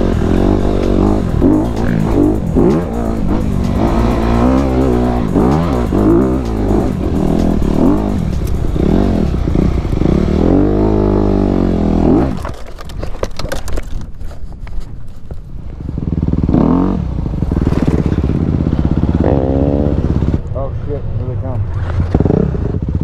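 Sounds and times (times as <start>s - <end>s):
dirt bike engine revving: 0.0s - 12.6s, 15.8s - 20.4s
clattering and scraping on rocks: 12.3s - 15.5s.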